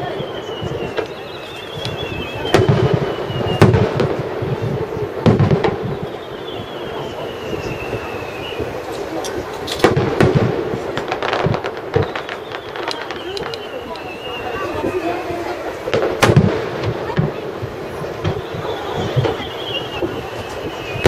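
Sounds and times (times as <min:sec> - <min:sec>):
high thin falling whistles: 0:00.0 - 0:03.8, 0:05.8 - 0:09.1, 0:11.9 - 0:15.3, 0:18.3 - 0:21.0
fireworks booming: 0:00.0 - 0:21.0
sharp crackling reports: 0:00.0 - 0:21.0.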